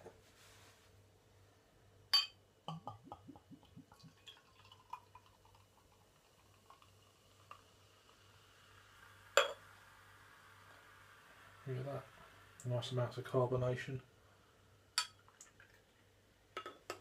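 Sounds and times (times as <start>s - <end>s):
glass clink: 2.1s - 2.9s, 9.4s - 9.6s, 15.0s - 15.2s
bottle glugging: 2.2s - 5.0s
beer filling a glass: 2.7s - 13.1s.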